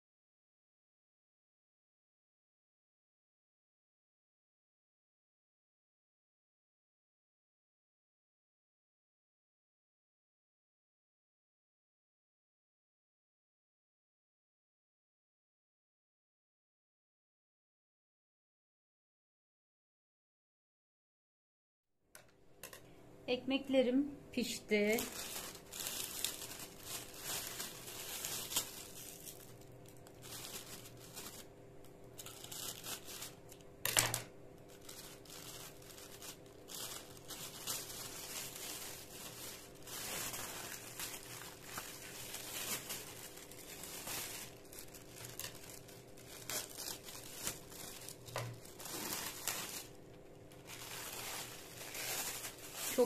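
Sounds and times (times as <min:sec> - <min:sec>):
plastic bags crinkling and tearing: 0:24.7 - 0:53.0.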